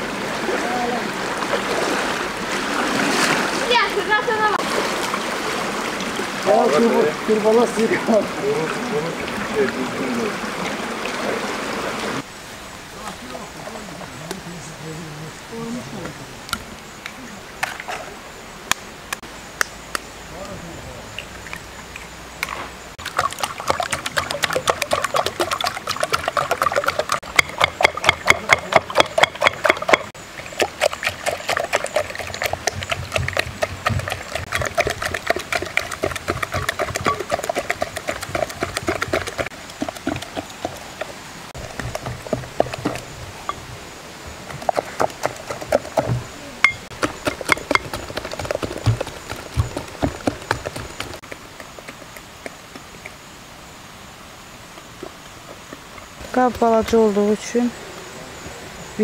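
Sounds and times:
whisk clicking against glass bowl: 23.7s - 30.1s, 31.2s - 40.2s
glass bowl ringing: 46.6s - 46.9s.

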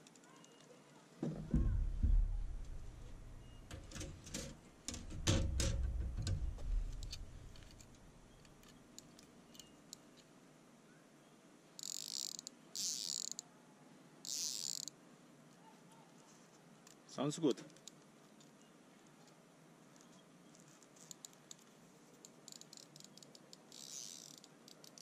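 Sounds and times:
rod sections knocking on glass: 1.2s - 8.0s
fly reel ratchet buzzing: 11.8s - 13.4s, 22.5s - 25.0s.

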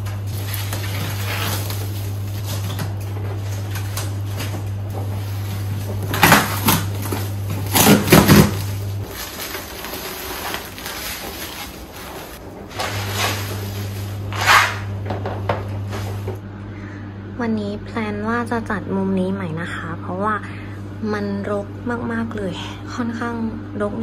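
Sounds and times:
bubble wrap rustling: 0.0s - 16.4s
cardboard and plastic ripping: 0.0s - 16.4s
steady low hum: 0.0s - 24.0s.

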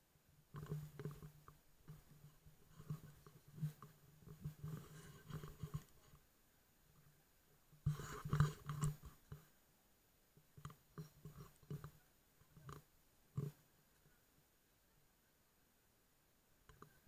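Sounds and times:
camera handling knocks and rubs: 7.9s - 9.4s.

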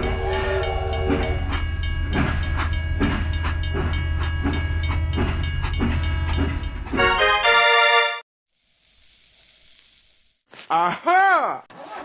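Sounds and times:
train whistle: 0.0s - 1.7s
low train rumble: 0.0s - 7.1s
wheels clacking on rail joints: 0.0s - 7.1s.

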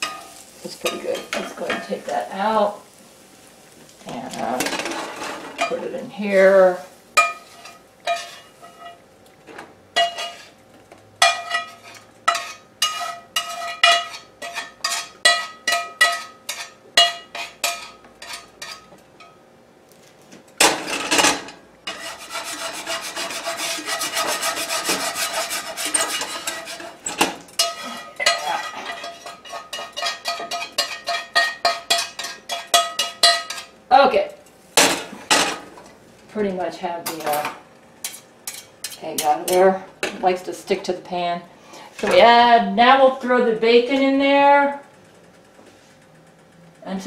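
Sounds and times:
metal spatula scraping skillet: 0.0s - 2.8s, 4.1s - 9.0s, 10.0s - 10.6s, 11.2s - 19.4s, 20.6s - 33.7s, 38.0s - 39.8s.

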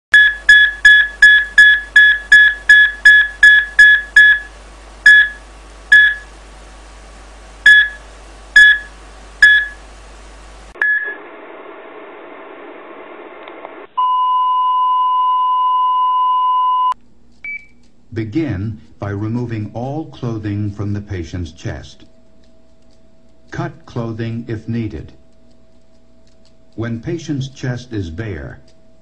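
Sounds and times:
cardiac monitor beeping: 0.1s - 6.3s, 7.6s - 8.0s, 8.6s - 9.8s, 10.8s - 11.2s, 14.0s - 17.8s.

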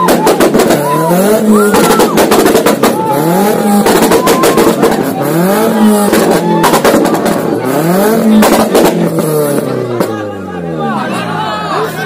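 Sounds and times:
exhaust pops and cracks: 0.0s - 5.2s, 5.9s - 10.2s
car engine revving: 0.0s - 10.9s.

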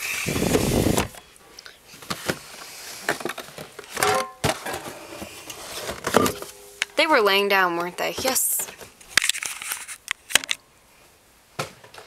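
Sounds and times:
boxes knocking and tapping: 3.1s - 6.5s
cardboard boxes scraping: 4.5s - 6.2s.

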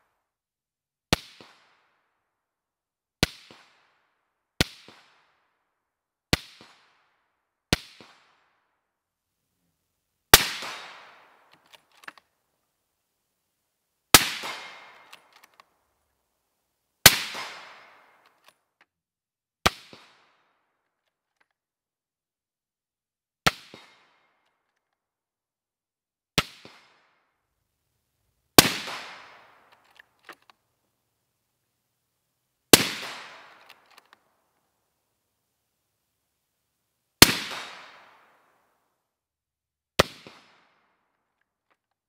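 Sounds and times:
suppressed rifle shots: 10.3s - 12.3s, 14.1s - 15.6s, 17.0s - 18.5s, 28.6s - 30.5s, 32.7s - 34.2s, 37.2s - 38.3s.

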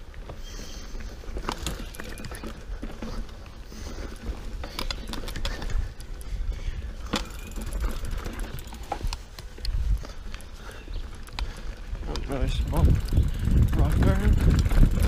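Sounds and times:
bike rattling over bumps: 0.0s - 15.0s
bike tyres rumbling on dirt: 0.0s - 15.0s
wind on microphone: 5.6s - 10.2s, 11.4s - 15.0s.

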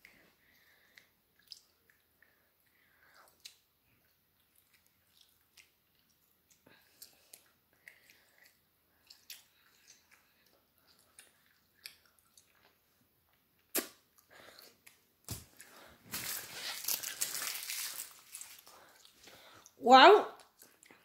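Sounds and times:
wet chewing clicks: 0.5s - 15.0s.

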